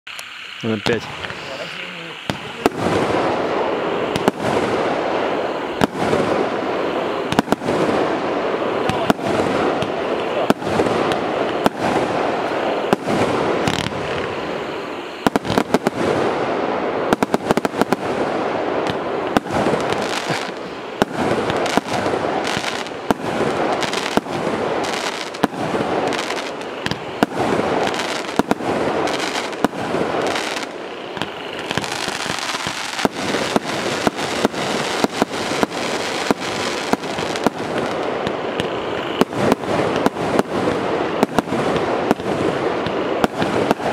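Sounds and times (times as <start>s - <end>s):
noisy haze: 0.1s - 43.9s
fireworks firing rapidly: 2.2s - 43.9s.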